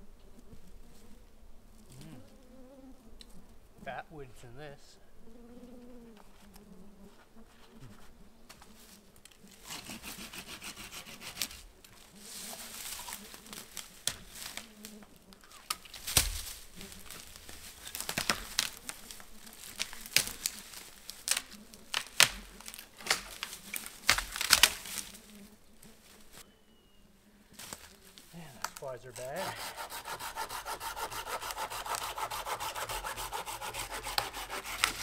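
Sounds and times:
twigs rustling: 8.5 - 26.5, 27.5 - 35.0
sticks snapping: 13.0 - 14.7, 15.4 - 25.2, 33.6 - 35.0.

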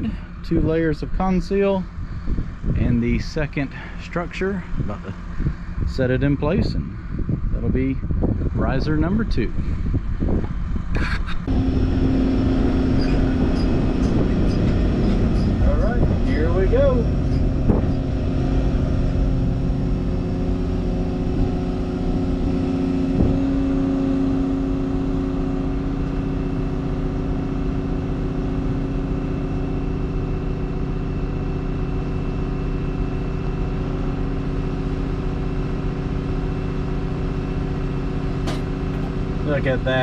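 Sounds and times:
diesel engine under load: 0.0 - 40.0
faint clunks: 38.4 - 39.2.

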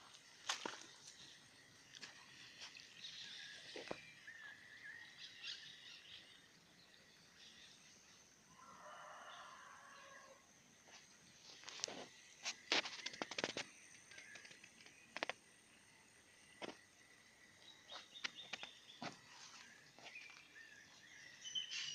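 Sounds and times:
clicks and crackles: 11.7 - 15.4
faint bird chirps: 17.5 - 21.9.

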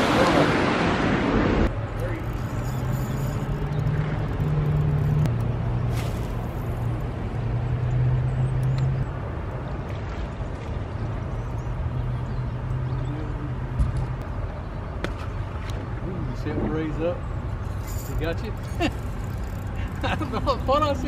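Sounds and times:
boat motor running: 1.5 - 21.0.

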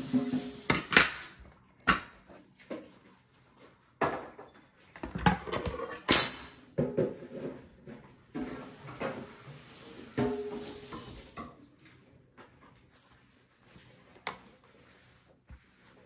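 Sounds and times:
cutlery and dishes clattering: 5.1 - 7.6.

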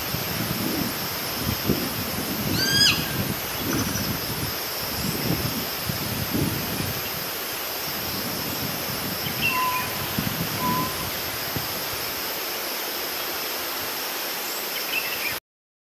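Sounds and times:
steady hiss: 0.0 - 15.4
bird whistling short notes: 9.4 - 10.0, 10.6 - 11.1.

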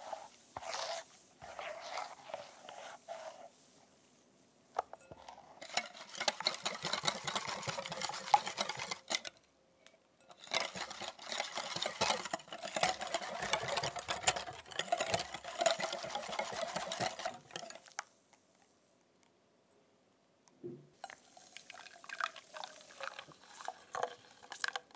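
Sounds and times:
whisk rattling against glass bowl: 5.1 - 9.4, 10.3 - 18.0.

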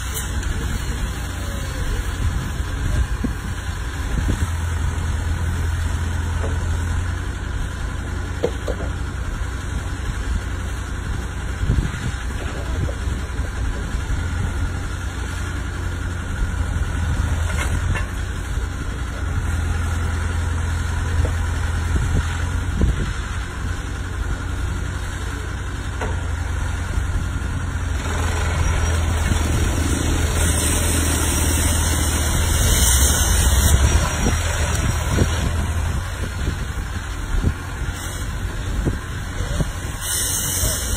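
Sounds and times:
hiss: 0.0 - 2.2, 29.9 - 34.8, 37.8 - 40.9
plate compactor humming and rumbling: 0.0 - 40.9.

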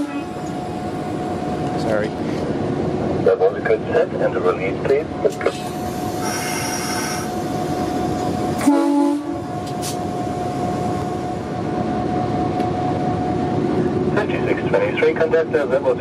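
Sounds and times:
diesel locomotive engine running: 0.0 - 16.0
air hissing: 5.6 - 7.9
loud horn toot: 8.6 - 9.4.

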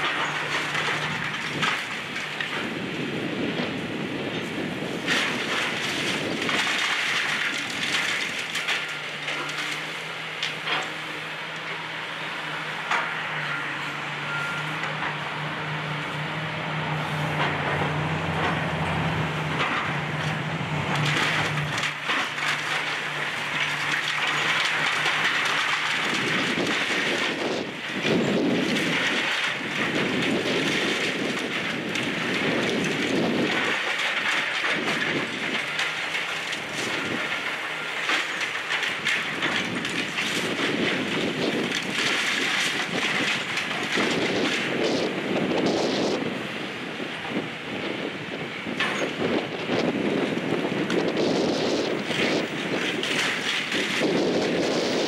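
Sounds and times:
masonry cracking: 0.0 - 2.8, 5.0 - 11.0, 19.5 - 46.3, 48.7 - 55.0
diesel engine hum: 0.0 - 55.0
debris clattering down: 20.9 - 45.0.

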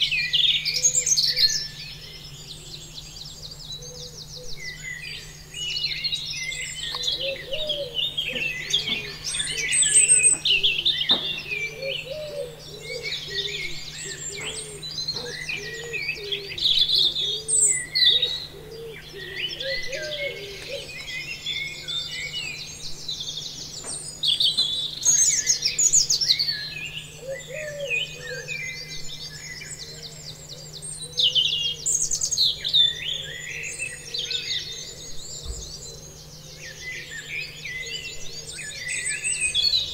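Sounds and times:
low repeating bird call: 0.0 - 23.5
birds chirping and trilling: 0.0 - 39.9
steady low hum: 0.0 - 39.9.

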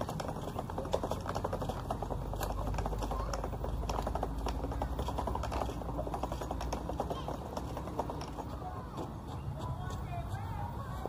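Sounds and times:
pushchair wheels rattling on concrete: 0.0 - 11.0.

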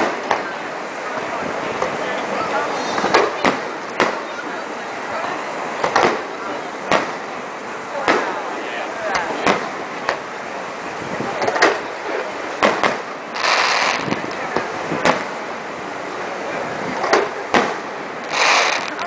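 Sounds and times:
firework hiss: 11.6 - 15.5, 17.0 - 19.0
firework shells bursting: 12.6 - 15.3, 17.1 - 19.0.

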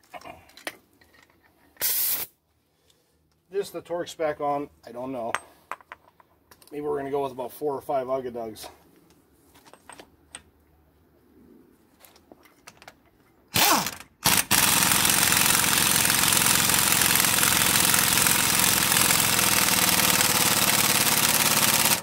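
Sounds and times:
impact wrench hammering: 13.6 - 22.0.

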